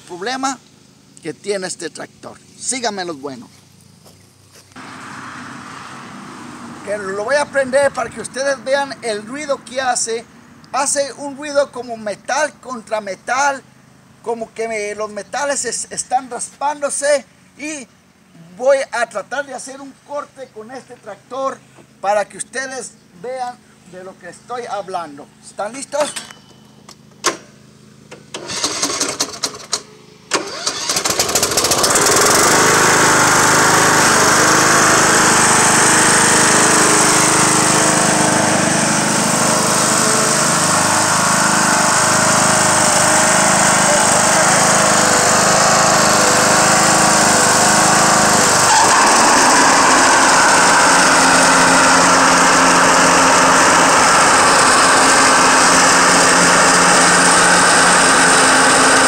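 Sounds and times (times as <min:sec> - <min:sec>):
riding mower engine running: 0:00.0 - 0:15.6, 0:25.3 - 0:59.0
riding mower engine cranking: 0:25.8 - 0:59.0.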